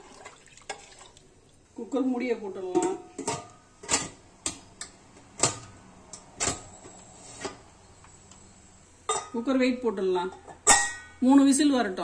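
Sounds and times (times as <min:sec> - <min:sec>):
metal lid clinking on pot: 0:10.5 - 0:11.1.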